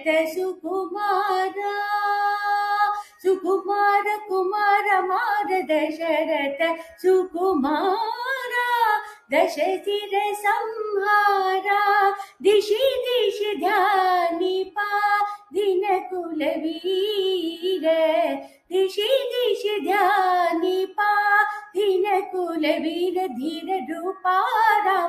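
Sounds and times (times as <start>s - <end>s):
breaths: 2.9s - 3.3s, 6.7s - 7.0s, 9.0s - 9.3s, 12.1s - 12.4s, 15.2s - 15.5s, 18.4s - 18.7s, 21.4s - 21.8s.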